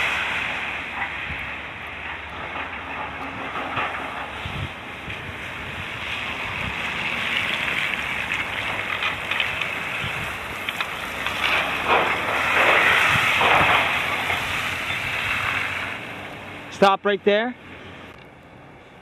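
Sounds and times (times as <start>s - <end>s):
wind noise on microphone: 0.0s - 1.8s, 2.4s - 15.6s.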